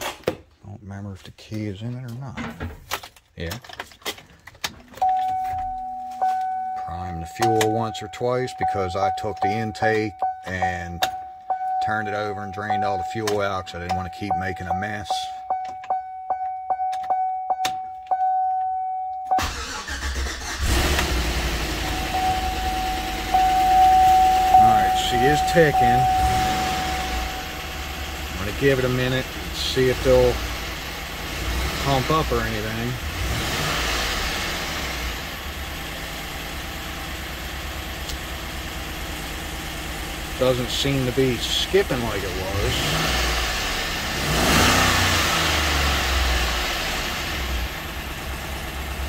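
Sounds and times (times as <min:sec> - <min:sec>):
warning chime ticking: 0:05.0 - 0:20.0, 0:21.4 - 0:33.0
engine lifters ticking: 0:05.0 - 0:49.0
engine cranking and starting: 0:19.3 - 0:23.6
car engine idling with lifter tick: 0:35.3 - 0:43.2.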